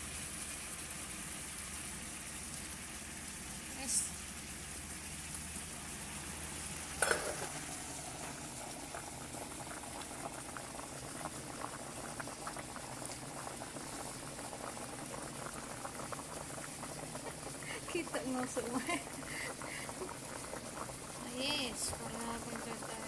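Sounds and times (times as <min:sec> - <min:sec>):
water boiling in a pot: 0:00.0 - 0:23.0.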